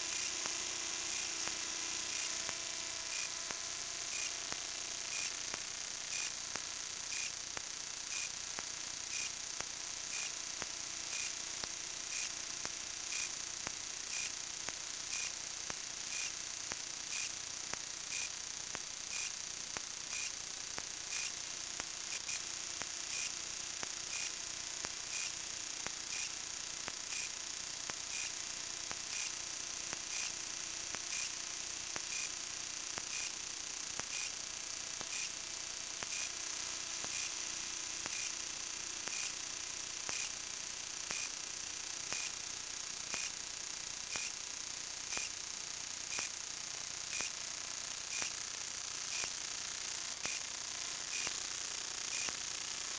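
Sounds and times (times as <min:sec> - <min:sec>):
high-pitched hiss: 0:00.0 - 0:07.4, 0:21.1 - 0:44.4, 0:45.1 - 0:46.4, 0:49.1 - 0:49.5.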